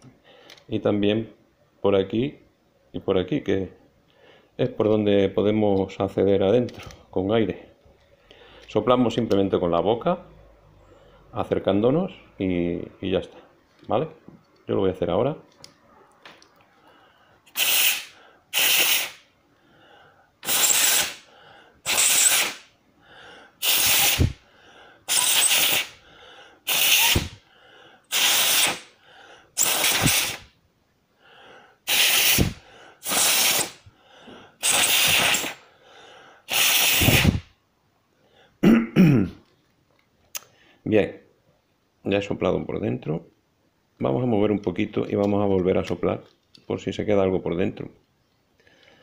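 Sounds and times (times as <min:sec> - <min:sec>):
person blowing puffs of breath: 0:16.8 - 0:30.5, 0:31.2 - 0:37.6.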